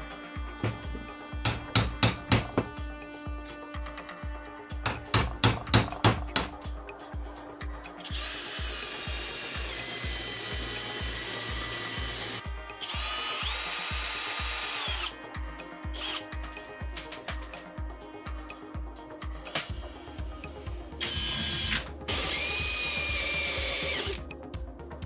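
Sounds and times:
background music with beat: 0.0s - 25.0s
cordless drill motor whine: 8.1s - 15.1s, 21.0s - 24.2s.

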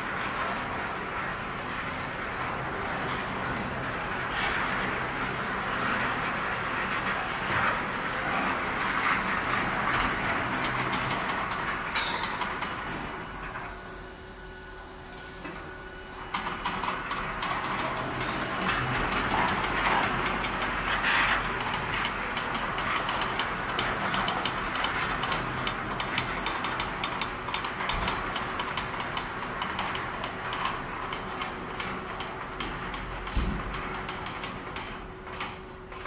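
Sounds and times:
machine whirring and humming: 0.0s - 36.0s
rapid regular clicking: 16.3s - 36.0s.

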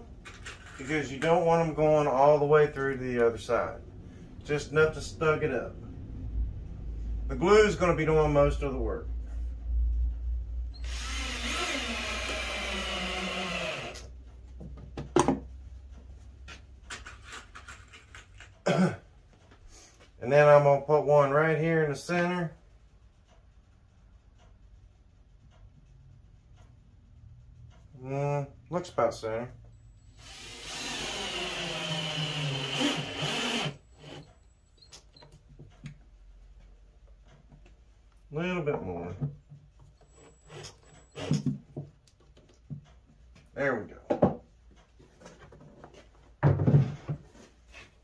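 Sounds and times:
cordless drill driving screw: 10.8s - 14.1s, 30.0s - 34.9s, 40.0s - 41.5s.

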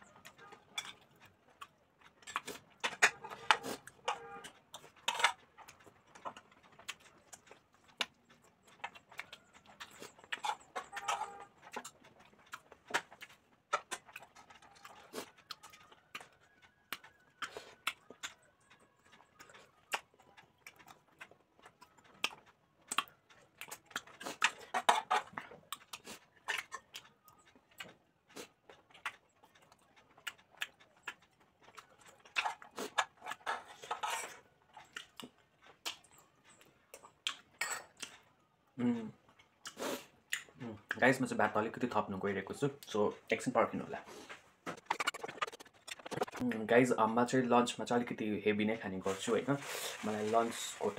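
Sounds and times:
person chewing and lip-smacking: 0.1s - 41.1s, 44.2s - 46.6s.

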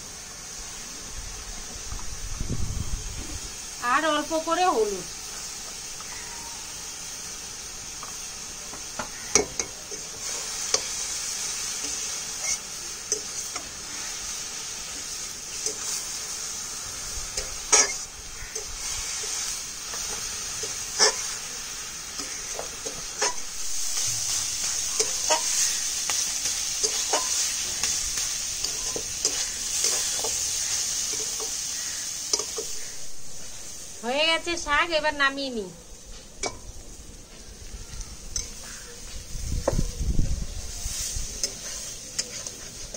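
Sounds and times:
greens sizzling in oil: 0.0s - 42.9s
spatula scraping a pan: 9.1s - 16.2s, 17.4s - 21.5s, 22.1s - 32.9s, 40.9s - 42.9s.

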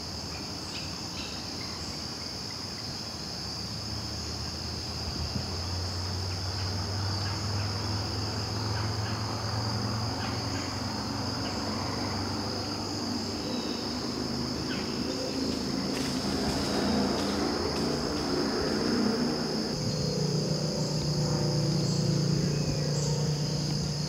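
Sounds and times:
high-pitched insect chorus: 0.0s - 24.0s
low hum: 12.8s - 24.0s.

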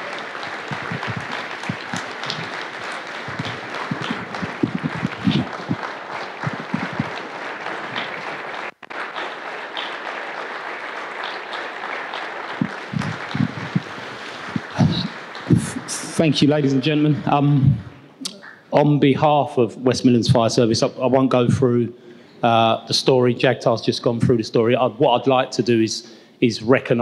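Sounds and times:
large audience applauding: 0.0s - 17.1s.

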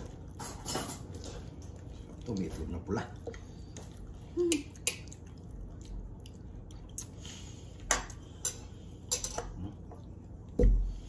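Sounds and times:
cutlery clinking on plates: 7.9s - 9.6s.

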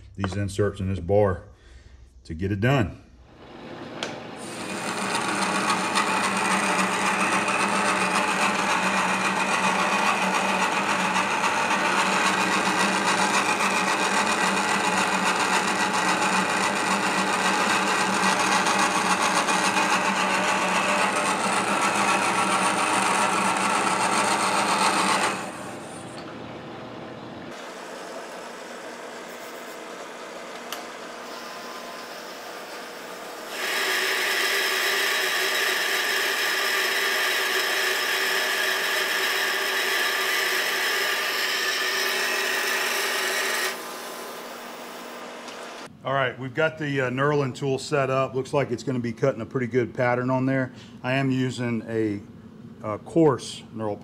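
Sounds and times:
metal lathe cutting: 3.9s - 26.2s, 27.5s - 45.9s.

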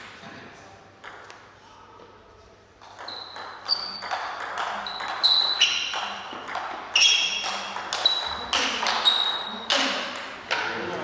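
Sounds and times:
table tennis ball clicking: 2.8s - 11.0s.

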